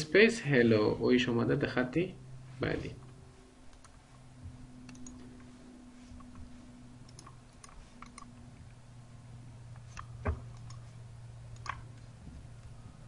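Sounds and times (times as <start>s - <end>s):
faint low hum: 0.0s - 13.0s
mouse and keyboard clicks: 4.8s - 5.3s, 6.2s - 8.4s, 9.8s - 10.9s, 11.5s - 12.1s.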